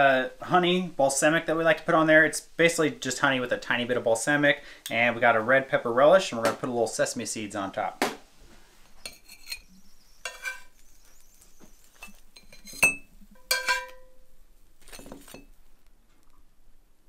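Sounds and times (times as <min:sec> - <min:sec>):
metal spatula clinking on plates: 0:09.0 - 0:10.8, 0:12.0 - 0:14.2.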